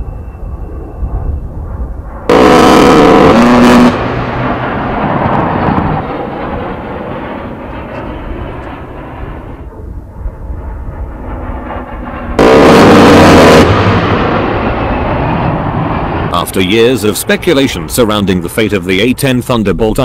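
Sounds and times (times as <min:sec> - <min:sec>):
rolling rumble: 0:00.0 - 0:12.4, 0:13.6 - 0:20.0
rotary cannon firing burst: 0:02.2 - 0:09.6, 0:11.1 - 0:17.0.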